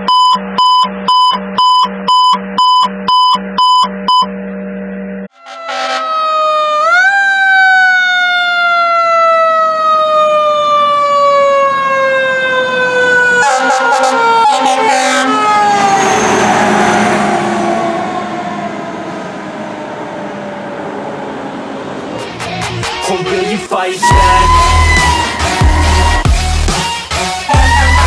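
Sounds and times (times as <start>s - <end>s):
electronic beeping: 0.0s - 4.5s
fire truck siren: 5.3s - 28.0s.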